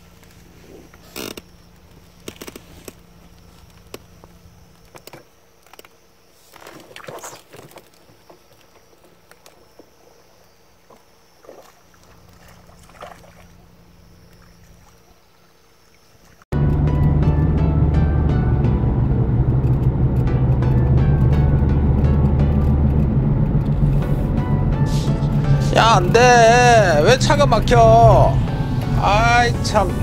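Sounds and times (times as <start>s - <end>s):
water sloshing: 6.5s - 16.4s
steady low hum: 16.5s - 30.0s.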